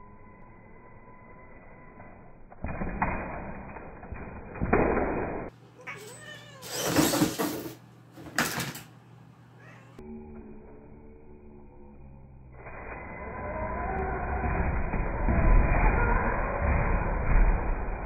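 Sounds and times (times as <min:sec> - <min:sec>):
cat meowing loudly: 0:05.8 - 0:06.8.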